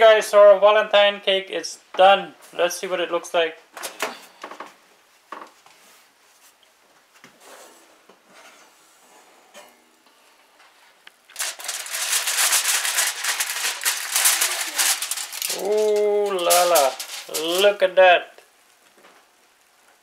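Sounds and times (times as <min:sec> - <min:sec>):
aluminium foil crinkling: 0:11.2 - 0:19.4.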